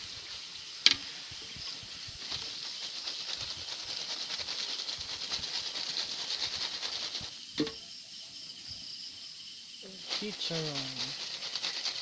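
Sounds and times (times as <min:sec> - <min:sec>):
food sizzling in hot oil: 0:00.0 - 0:02.6.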